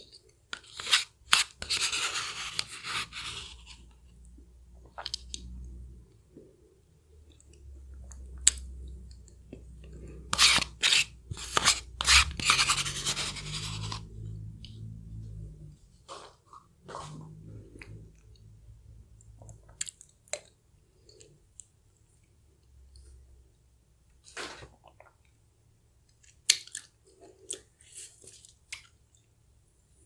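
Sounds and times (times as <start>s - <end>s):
spoon scraping paper cup: 0.5s - 4.0s, 10.2s - 14.1s.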